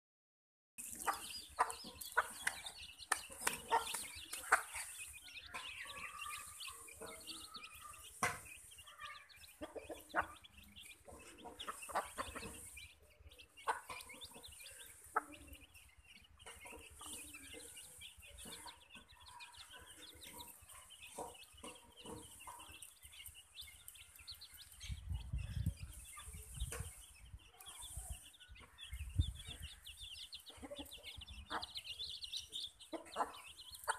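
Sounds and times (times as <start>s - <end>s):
chickens clucking: 0.8s - 33.9s
chicks peeping: 0.8s - 33.9s
pecking clicks on concrete: 2.1s - 4.8s.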